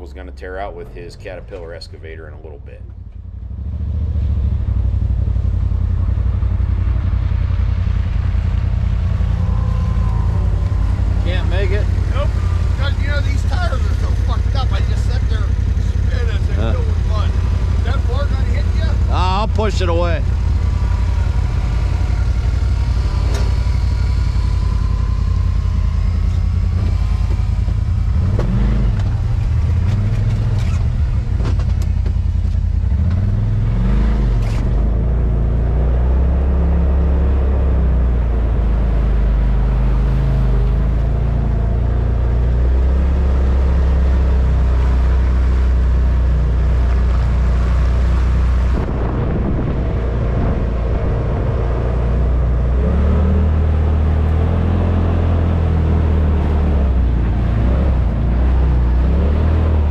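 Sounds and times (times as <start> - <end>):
utility vehicle engine running: 0.0 - 59.9
sharp clicks and knocks: 26.8 - 33.3.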